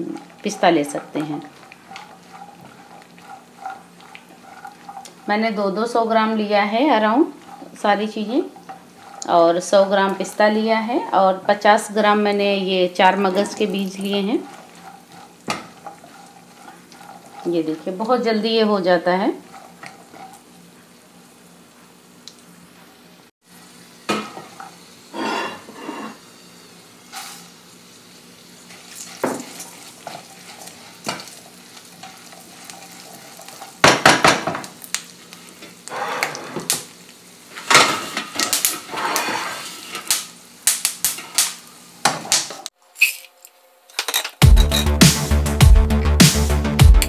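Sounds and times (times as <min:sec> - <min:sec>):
wooden spatula scraping a pan: 0:00.0 - 0:21.0, 0:24.2 - 0:26.3, 0:27.1 - 0:27.5, 0:28.7 - 0:34.7, 0:35.4 - 0:36.8, 0:37.5 - 0:40.1
nuts sizzling in a pan: 0:00.0 - 0:43.3.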